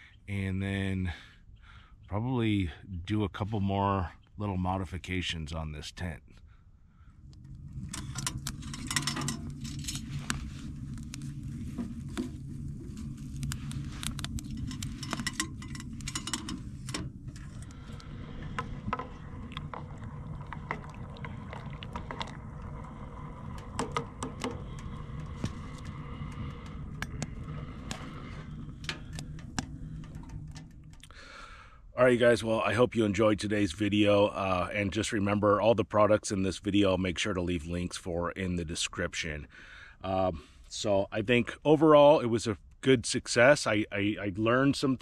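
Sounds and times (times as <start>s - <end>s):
steady low hum: 0.0s - 45.0s.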